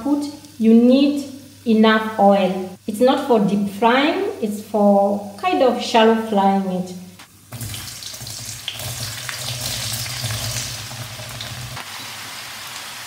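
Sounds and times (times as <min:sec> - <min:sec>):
potatoes sizzling in oil: 0:00.0 - 0:03.5, 0:07.4 - 0:13.0.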